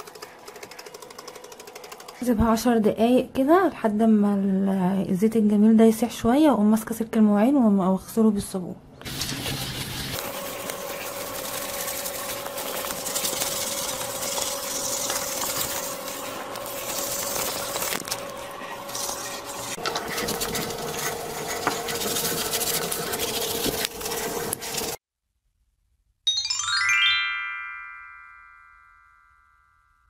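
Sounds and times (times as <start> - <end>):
steel wool scrubbing tiles: 9.1 - 25.0.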